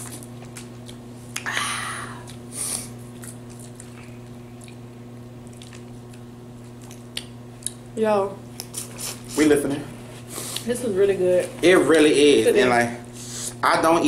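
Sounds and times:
chewing: 0.0s - 1.4s, 3.1s - 7.8s
steady low hum: 0.0s - 14.0s.

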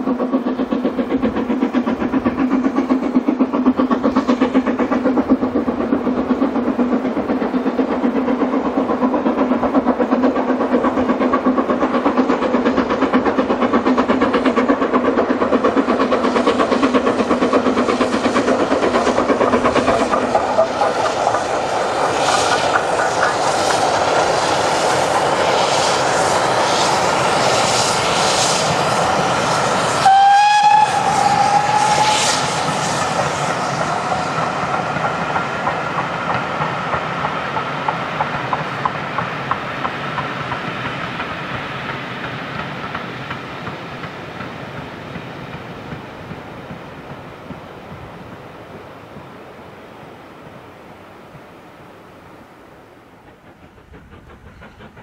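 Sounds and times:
train wheels clickety-clack: 0.0s - 49.3s, 53.0s - 55.0s
train hum: 0.0s - 55.0s
locomotive whistle: 30.0s - 32.6s.

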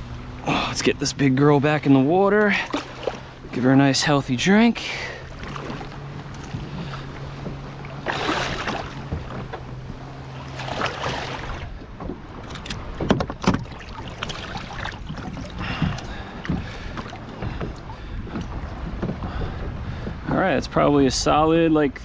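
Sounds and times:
water sloshing and splashing: 0.0s - 22.0s
sharp knocks on kayak: 12.0s - 19.4s.

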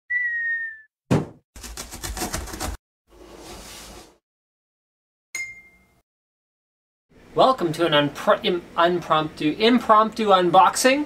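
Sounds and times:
bright ding: 5.4s - 6.0s.

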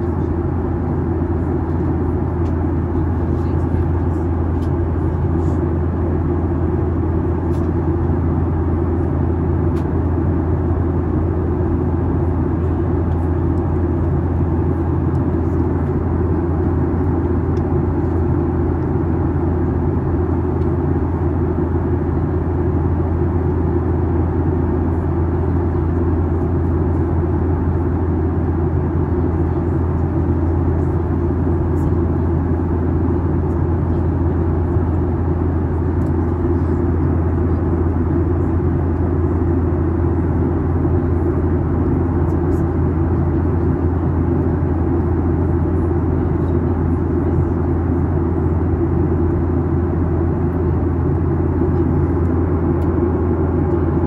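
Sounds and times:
airplane cabin engine drone: 0.0s - 54.0s.

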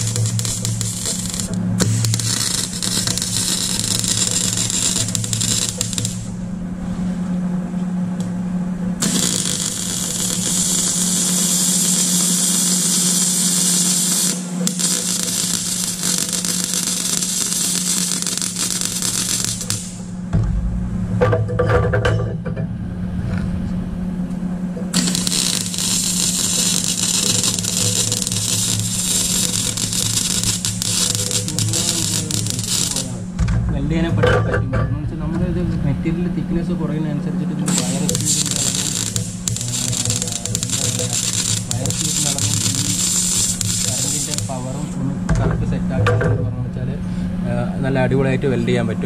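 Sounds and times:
welding arc hissing and crackling: 0.0s - 6.4s, 9.0s - 20.2s, 24.9s - 33.4s, 37.6s - 45.9s
steady low hum: 0.0s - 49.0s.

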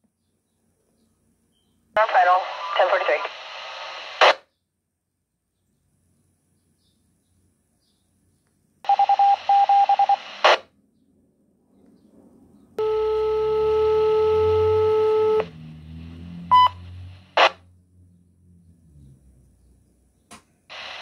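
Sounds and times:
radio squelch crackle: 2.0s - 4.4s, 9.0s - 10.7s, 17.1s - 17.6s, 20.7s - 21.0s
steady radio tone: 2.0s - 4.4s, 8.9s - 10.7s, 20.7s - 21.0s.

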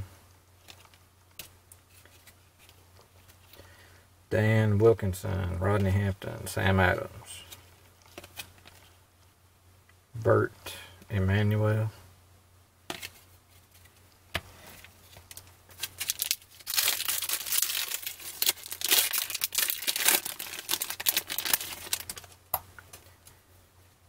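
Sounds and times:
card pack wrapper crinkling and tearing: 15.1s - 22.4s.

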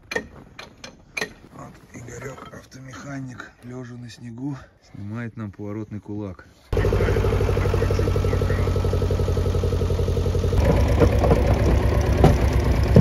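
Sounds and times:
vehicle engine idling: 6.7s - 13.0s
knocks and clatter: 10.4s - 13.0s.

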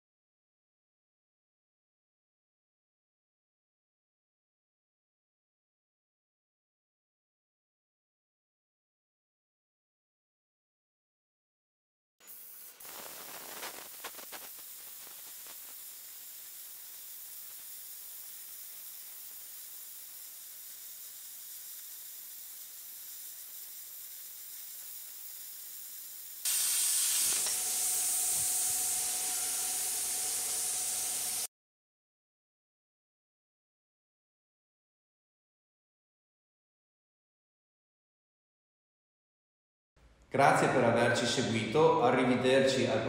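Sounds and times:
crackles: 12.2s - 19.4s
plasma cutter hissing: 12.2s - 31.5s.

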